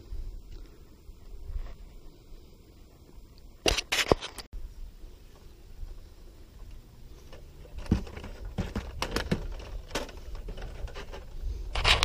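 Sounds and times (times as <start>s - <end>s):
pole scraping: 7.1s - 12.0s.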